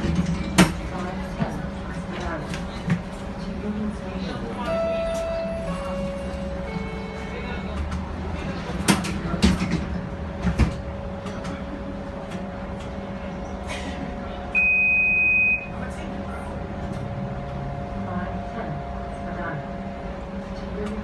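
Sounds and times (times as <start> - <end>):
streetcar hum: 0.0 - 21.0
high electronic beep: 14.6 - 15.7.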